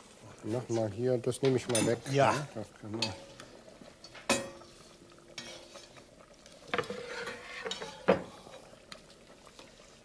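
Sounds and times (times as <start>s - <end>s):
utensils clinking and scraping pans: 0.8s - 3.4s, 6.7s - 8.4s.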